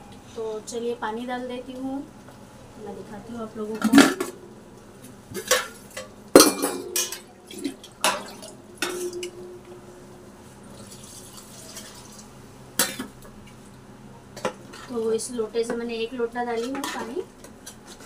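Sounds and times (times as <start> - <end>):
steel utensils clinking: 5.4 - 7.3, 8.0 - 9.4.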